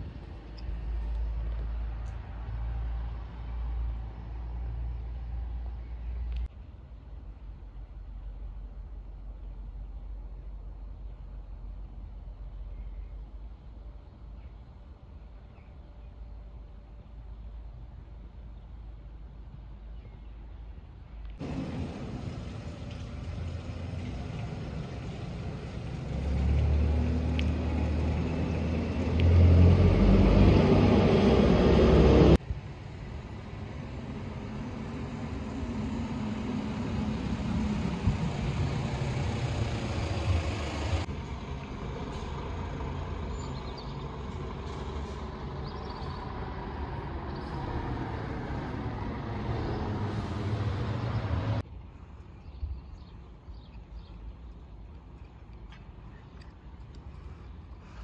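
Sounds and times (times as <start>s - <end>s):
outdoor street noise: 0.0s - 58.0s
vehicle engine running: 21.4s - 32.4s.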